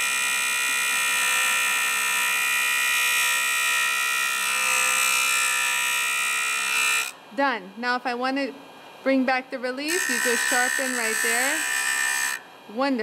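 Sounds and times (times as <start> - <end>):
abrasive disc grinding drill bit: 0.0 - 7.2, 9.9 - 12.4.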